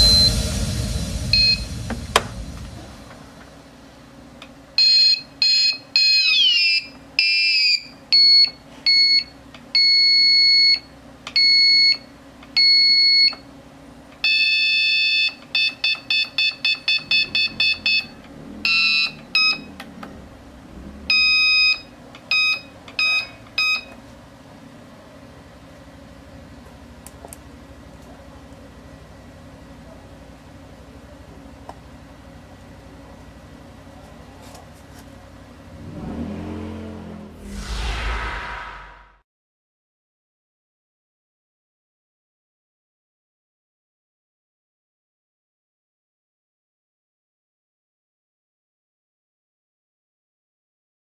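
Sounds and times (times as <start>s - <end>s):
electronic buzzer beeping: 14.4s - 19.7s, 21.1s - 23.8s.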